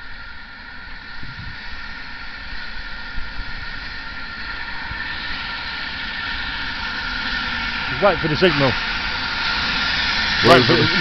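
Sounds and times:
locomotive hiss and hum: 0.0s - 11.0s.

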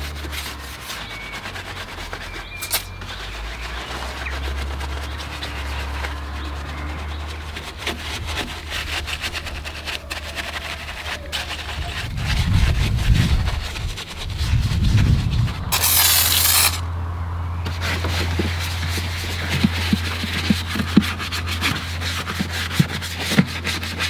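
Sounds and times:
brush scrubbing wet parts: 0.0s - 16.8s, 17.7s - 24.0s
hand pump sprayer hiss: 15.7s - 16.8s.

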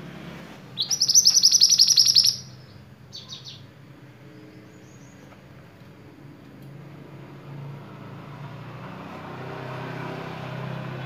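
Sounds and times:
bird singing rapid trill: 0.7s - 5.3s.

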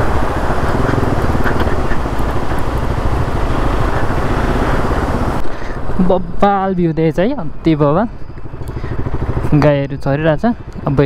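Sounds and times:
loud rushing noise: 0.0s - 5.9s
motorcycle engine running: 0.0s - 11.0s.

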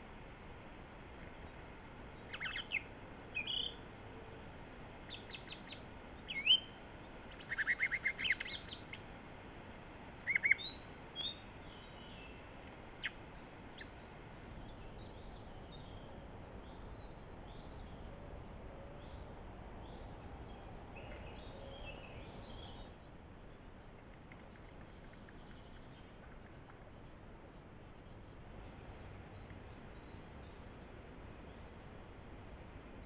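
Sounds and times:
songbirds singing: 0.6s - 33.0s.

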